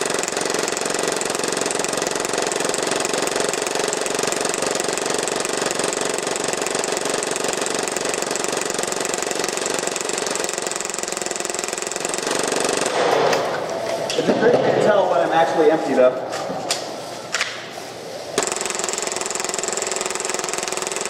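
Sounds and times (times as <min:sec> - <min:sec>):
airsoft pistol rapid fire rattle: 0:00.0 - 0:13.4, 0:18.4 - 0:21.0.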